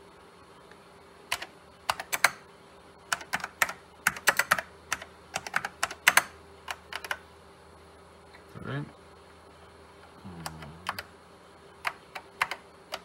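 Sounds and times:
keyboard keystroke clicks: 3.1 - 7.2, 11.8 - 13.0.

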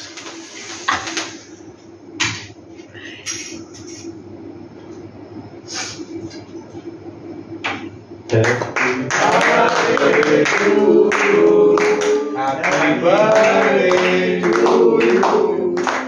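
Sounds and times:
hands clapping: 8.3 - 16.0
men singing together: 9.0 - 16.0.

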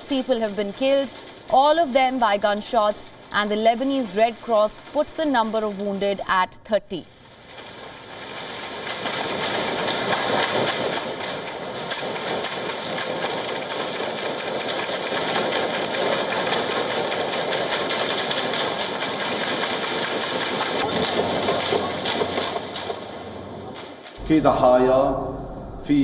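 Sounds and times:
rapid gunfire: 7.2 - 24.2.

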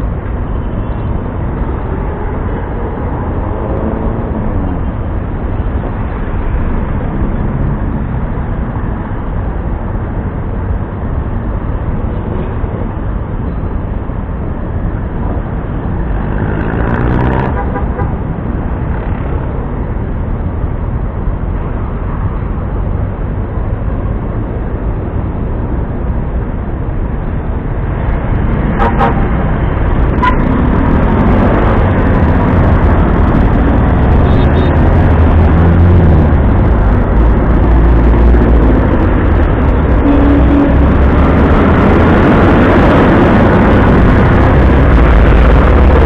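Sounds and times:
horn beeps: 30.2 - 30.5, 34.2 - 34.8.

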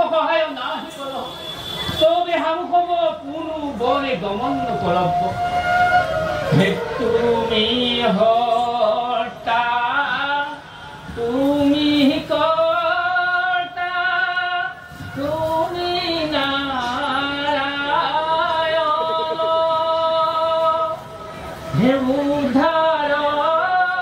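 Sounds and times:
person singing slow song: 6.5 - 24.0.

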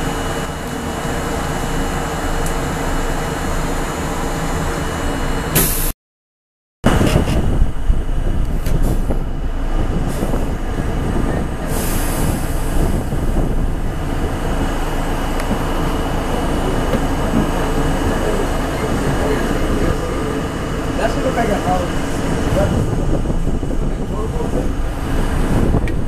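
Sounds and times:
subway train wheels on rails: 0.0 - 5.9, 6.9 - 26.0.

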